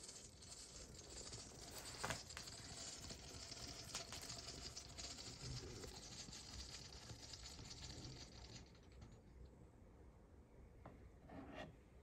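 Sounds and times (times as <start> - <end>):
oil trickling into jug: 0.0 - 9.2.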